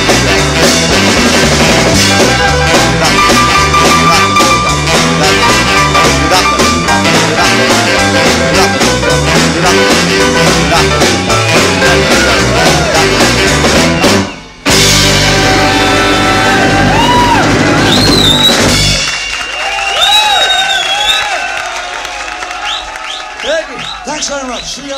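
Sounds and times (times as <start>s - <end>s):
jump blues band playing: 0.0s - 20.1s.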